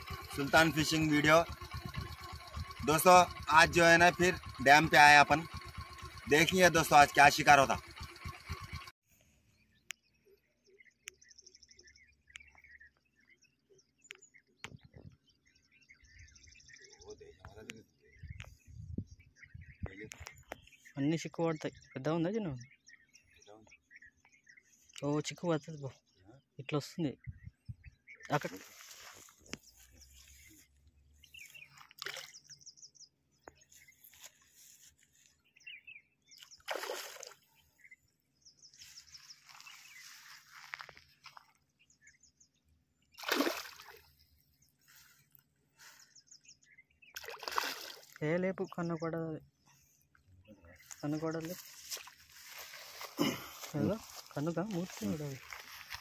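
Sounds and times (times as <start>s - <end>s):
faint birds chirping: 0.0s - 56.0s
fish splashing in shallow water: 31.7s - 32.5s, 36.4s - 37.6s, 40.9s - 41.7s, 43.2s - 44.4s, 47.1s - 48.2s.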